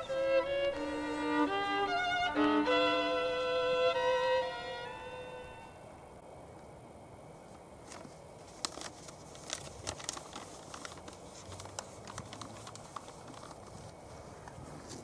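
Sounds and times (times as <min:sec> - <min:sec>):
faint outdoor hiss: 0:00.0 - 0:15.0
light clicks and crinkles: 0:07.5 - 0:15.0.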